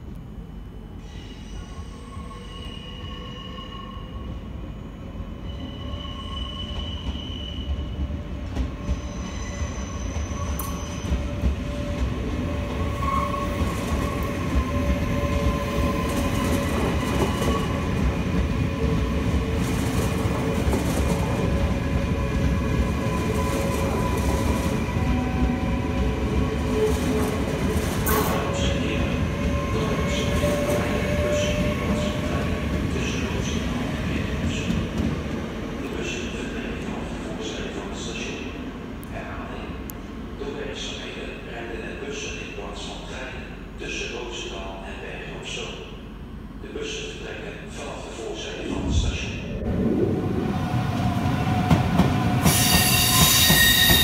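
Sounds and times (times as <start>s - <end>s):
wheels squealing on rails: 1.0s - 17.9s, 52.0s - 54.0s.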